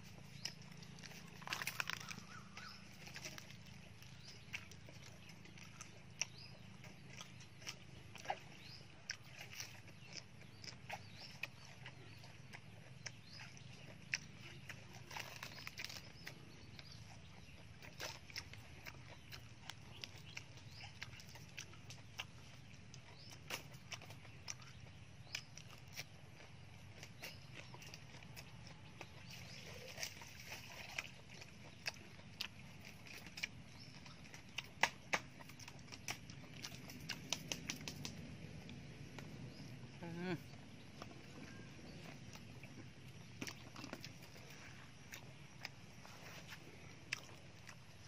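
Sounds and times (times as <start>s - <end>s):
person chewing with mouth clicks: 0.0s - 48.0s
cabbage leaves being torn: 0.4s - 5.3s, 15.0s - 16.9s, 31.8s - 38.8s.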